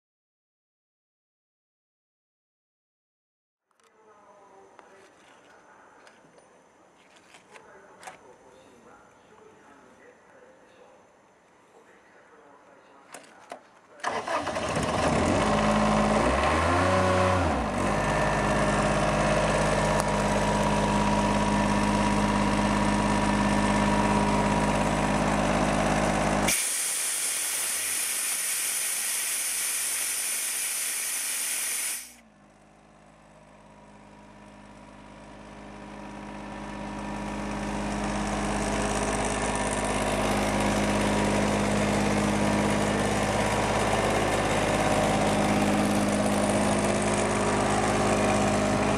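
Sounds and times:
diesel air compressor running: 0:14.1 - 0:32.2, 0:32.8 - 0:48.9
compressed air hissing: 0:26.5 - 0:32.2.

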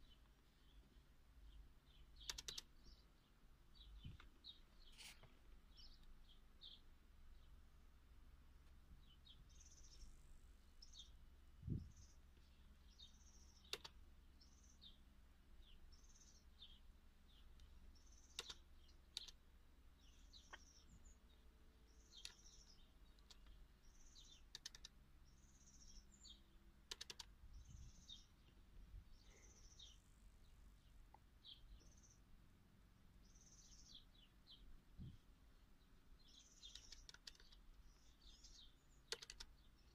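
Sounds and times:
faint bird chirping: 0:00.0 - 0:39.9
laptop keys clicking: 0:02.2 - 0:02.7, 0:13.6 - 0:14.0, 0:18.2 - 0:19.4, 0:22.2 - 0:22.5, 0:24.5 - 0:25.0, 0:26.9 - 0:27.4, 0:36.6 - 0:37.6, 0:39.1 - 0:39.5.

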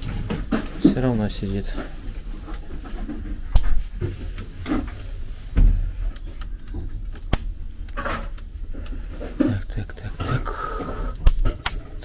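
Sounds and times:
steady low hum: 0:00.0 - 0:12.0
sharp clicks and knocks: 0:05.6 - 0:12.0.

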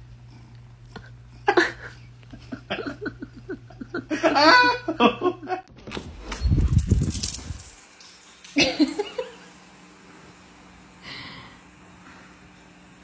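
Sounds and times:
steady low hum: 0:00.0 - 0:13.0
man laughing: 0:01.5 - 0:05.6, 0:08.6 - 0:09.4.

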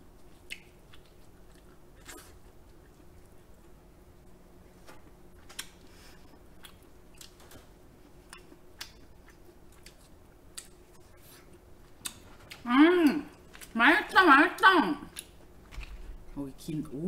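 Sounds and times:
chewing crab meat clicks: 0:08.2 - 0:10.8.

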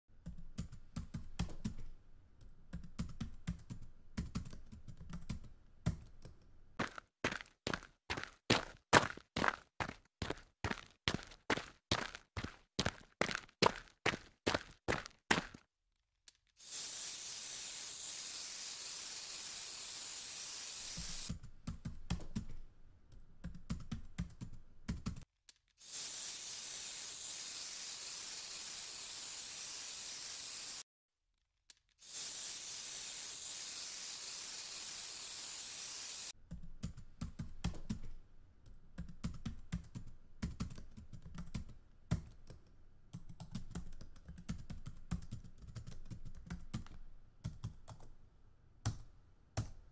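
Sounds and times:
steady hiss: 0:16.6 - 0:21.3, 0:25.8 - 0:30.8, 0:32.0 - 0:36.3.

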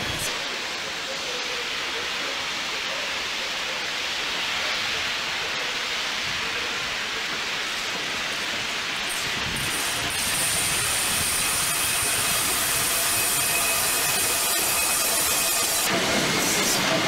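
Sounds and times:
locomotive rushing noise: 0:06.0 - 0:17.0.

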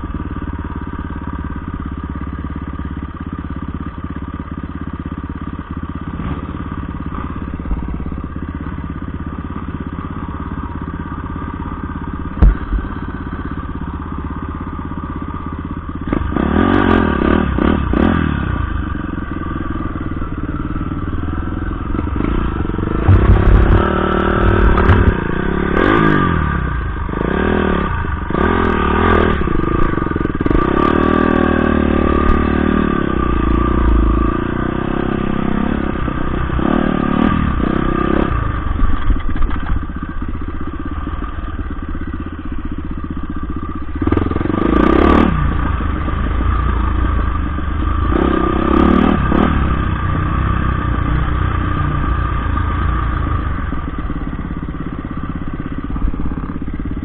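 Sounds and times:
dirt bike engine revving: 0:06.0 - 0:09.0, 0:09.7 - 0:39.8, 0:43.3 - 0:57.0
sharp knock: 0:12.3 - 0:13.0.

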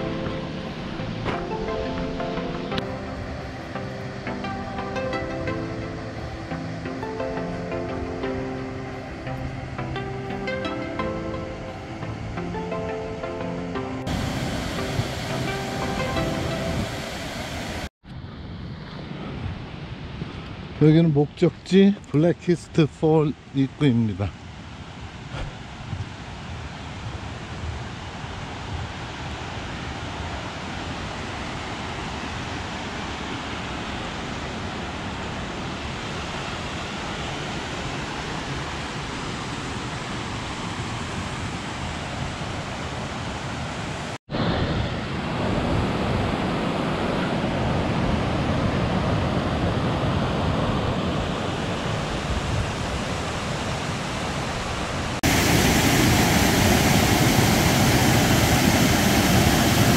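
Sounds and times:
waterfall rushing: 0:00.0 - 0:17.9, 0:32.9 - 0:59.9.

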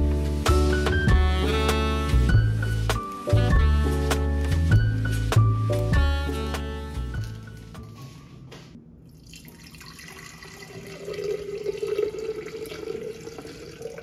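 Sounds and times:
water pouring into glass vase: 0:09.1 - 0:14.0.

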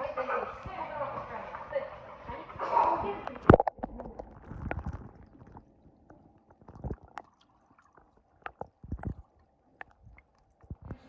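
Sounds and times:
dull underwater knocks and clicks: 0:00.6 - 0:11.0
underwater rumble and gurgle: 0:00.6 - 0:11.0.

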